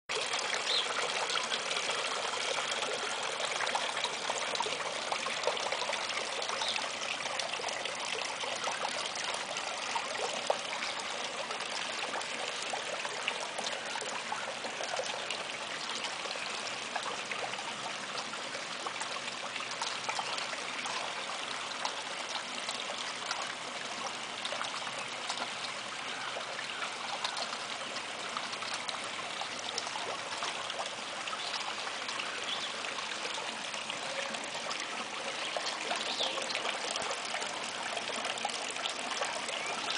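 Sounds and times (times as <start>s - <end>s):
water trickling: 0.1s - 39.9s.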